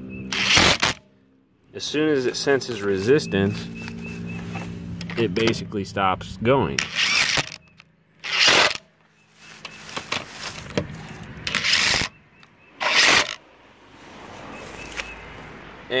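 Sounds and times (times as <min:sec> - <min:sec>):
impact wrench bursts: 0:00.3 - 0:01.0, 0:06.8 - 0:07.6, 0:08.2 - 0:08.8, 0:11.5 - 0:12.2, 0:12.8 - 0:13.4.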